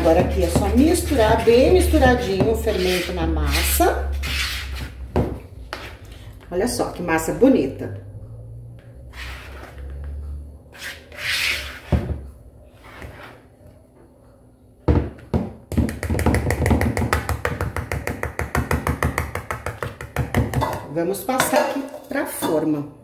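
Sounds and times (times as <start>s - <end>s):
whisk beating batter in bowl: 0.0s - 3.8s.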